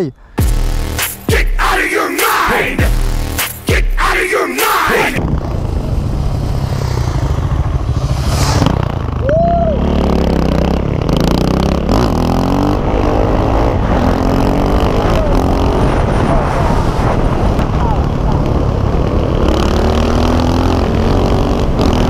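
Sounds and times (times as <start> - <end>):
motorcycle engine revving: 4.9 - 22.0.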